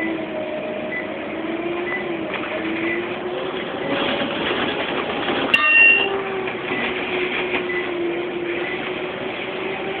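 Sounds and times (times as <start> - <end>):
bus engine whine: 0.0 - 10.0
road noise: 0.0 - 10.0
short ringing ding: 5.6 - 6.1.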